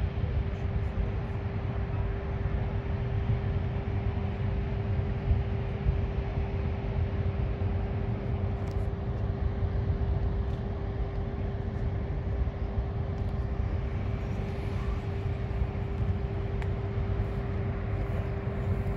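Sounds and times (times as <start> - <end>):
droning hum: 0.0 - 18.9
outdoor rumble: 13.0 - 18.9.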